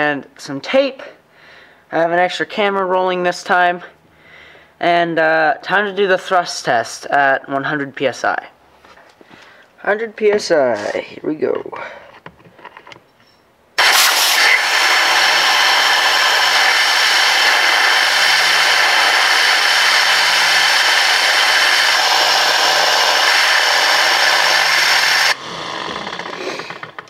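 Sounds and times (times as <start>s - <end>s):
compressed air hissing through turbine: 13.8s - 27.0s.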